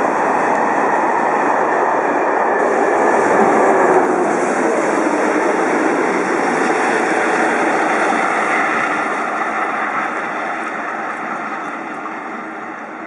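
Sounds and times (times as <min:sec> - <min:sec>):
train wheels on rails: 0:00.0 - 0:13.0.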